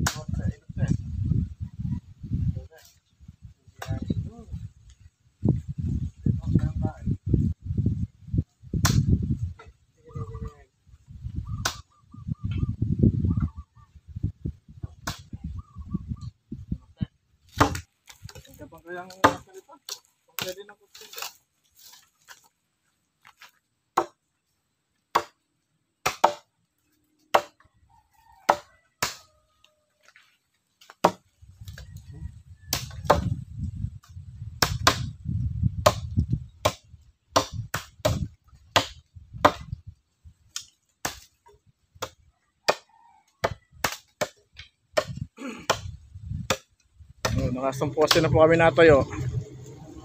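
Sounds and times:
sharp chopping strikes: 0.0s - 0.4s, 8.8s - 9.1s, 14.9s - 15.3s, 17.5s - 17.9s, 19.1s - 19.4s, 25.1s - 25.4s, 26.0s - 26.5s, 27.3s - 27.6s, 28.5s - 29.2s, 34.6s - 35.1s, 35.8s - 39.8s, 40.5s - 41.4s, 45.0s - 48.5s
low rumble: 47.7s - 50.0s.

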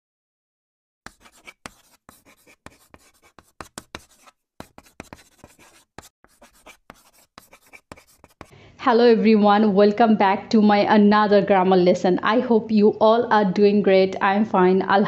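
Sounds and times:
chalk scratching on blackboard: 1.1s - 8.6s.

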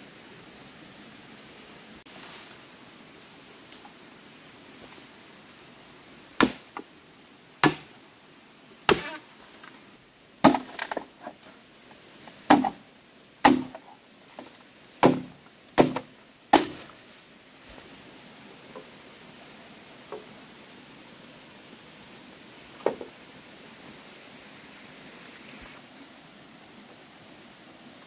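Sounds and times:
machete chopping bamboo: 6.4s - 6.9s, 7.6s - 8.0s, 8.9s - 9.2s, 10.4s - 11.1s, 12.5s - 12.8s, 13.4s - 13.8s, 15.0s - 16.9s.

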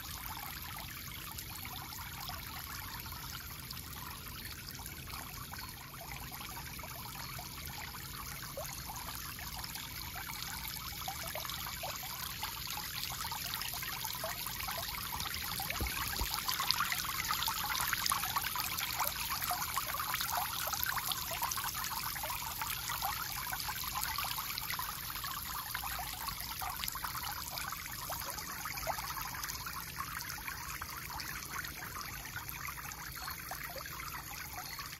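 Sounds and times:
fountain water splashing: 8.1s - 34.9s.

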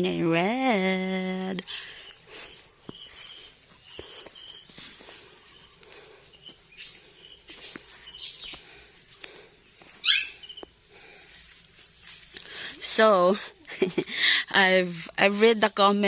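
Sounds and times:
insect hum: 0.0s - 16.0s
bird chirps: 1.6s - 8.9s, 10.0s - 10.7s.

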